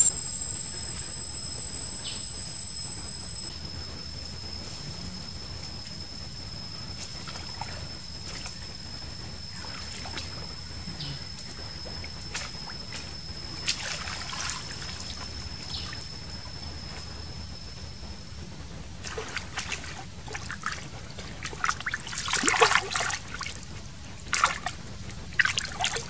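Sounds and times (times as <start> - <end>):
stream water splashing: 13.6 - 15.1, 21.4 - 23.6, 24.2 - 26.0.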